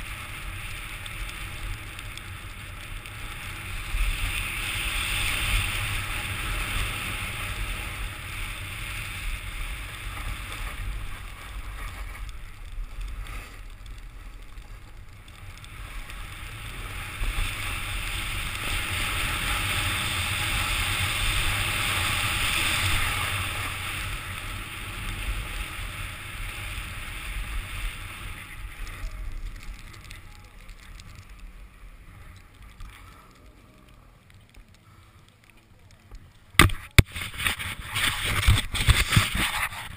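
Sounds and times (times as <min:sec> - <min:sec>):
skis scraping on snow: 0:00.0 - 0:35.1, 0:36.7 - 0:39.9
wind rumbling on microphone: 0:00.0 - 0:39.9.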